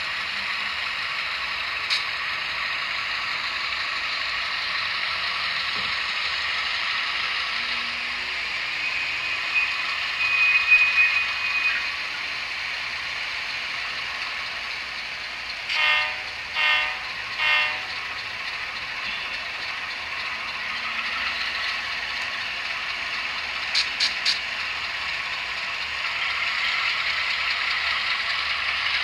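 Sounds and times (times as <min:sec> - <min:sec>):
model diesel engine sound: 0:00.0 - 0:29.0
high whine: 0:07.6 - 0:12.2
short horn toots: 0:15.7 - 0:17.9.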